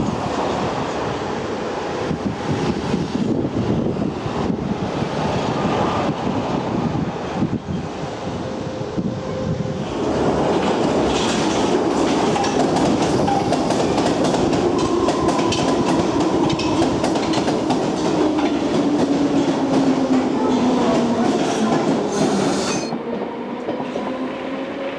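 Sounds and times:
wind buffeting microphone: 0:00.0 - 0:22.2
train rumbling: 0:00.0 - 0:24.9
wheels clicking over rail joints: 0:10.6 - 0:19.1.

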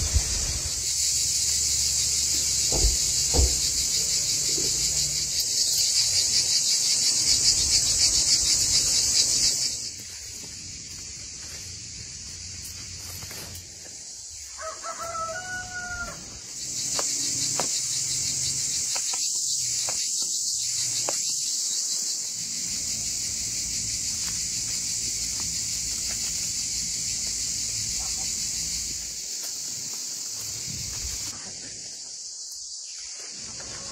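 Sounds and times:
high pulsing insect shrill: 0:00.0 - 0:10.0, 0:10.7 - 0:31.3
rooster crowing: 0:14.5 - 0:16.4.

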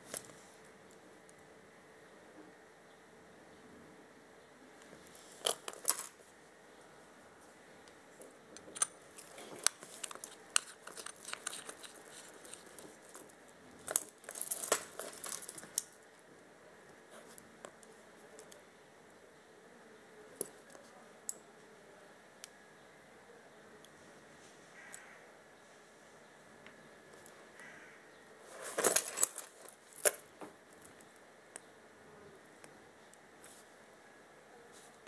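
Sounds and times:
watch bracelet clinking: 0:08.7 - 0:16.0, 0:28.6 - 0:30.2.

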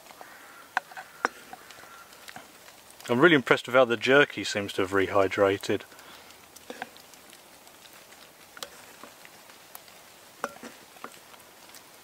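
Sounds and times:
wooden spoon knocking iron pot: 0:00.7 - 0:01.6, 0:10.4 - 0:11.2.

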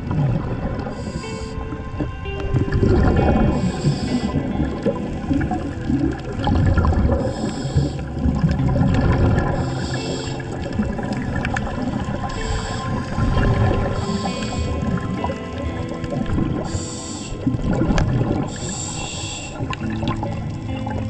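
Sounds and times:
exhaled bubbles rumbling underwater: 0:00.0 - 0:21.0
regulator inhalation hiss: 0:00.9 - 0:01.7, 0:03.5 - 0:04.6, 0:07.1 - 0:08.2, 0:09.6 - 0:10.7, 0:12.2 - 0:13.2, 0:13.8 - 0:15.0, 0:16.6 - 0:17.6, 0:18.4 - 0:19.8.

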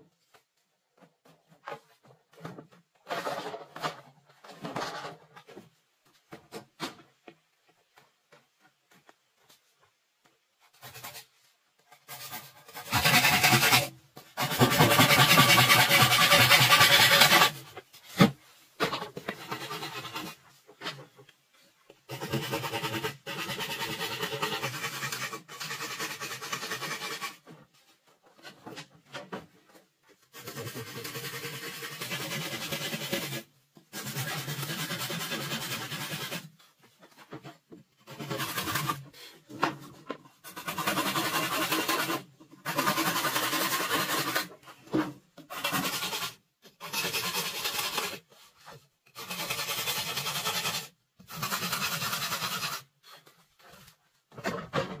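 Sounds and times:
machete scraping bamboo: 0:11.9 - 0:21.0, 0:30.3 - 0:36.6.

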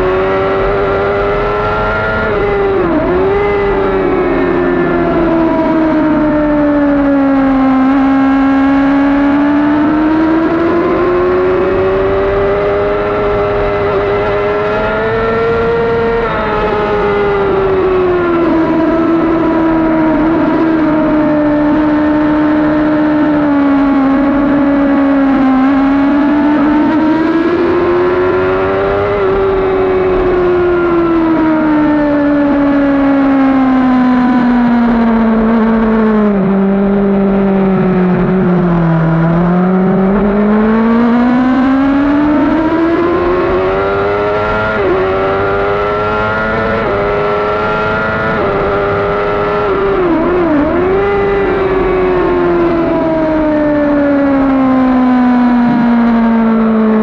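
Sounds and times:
motorcycle engine at high revs: 0:00.0 - 0:57.0.

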